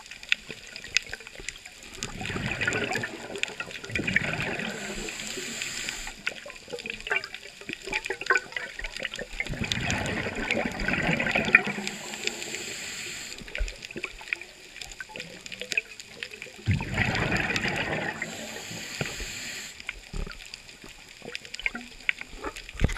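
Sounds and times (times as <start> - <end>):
exhaled bubbles gurgling: 0.0 - 22.9
faint crackling: 0.2 - 22.9
regulator inhale hiss: 4.5 - 6.4, 11.6 - 13.7, 18.1 - 20.0.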